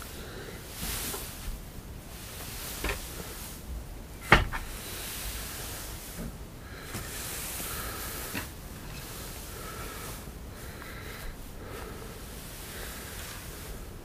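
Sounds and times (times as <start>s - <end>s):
faint background rustle: 0.0s - 14.0s
knocks: 4.2s - 4.7s.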